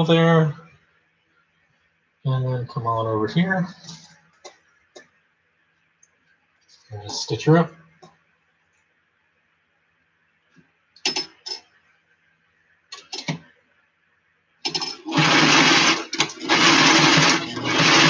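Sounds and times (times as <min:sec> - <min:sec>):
sewing machine stitching: 0:14.7 - 0:18.0.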